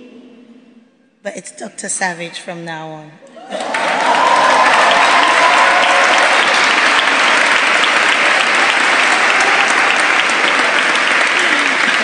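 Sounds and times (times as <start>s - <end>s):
cheers: 3.3s - 12.0s
audience applauding: 3.4s - 12.0s.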